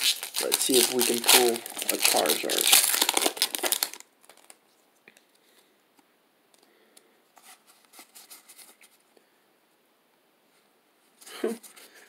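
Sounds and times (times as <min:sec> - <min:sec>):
foil wrapper crinkling: 0:00.0 - 0:04.6.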